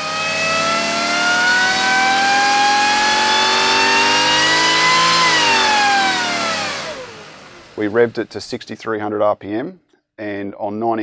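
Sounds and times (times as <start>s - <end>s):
supercharged engine revving on dyno: 0.0s - 8.3s.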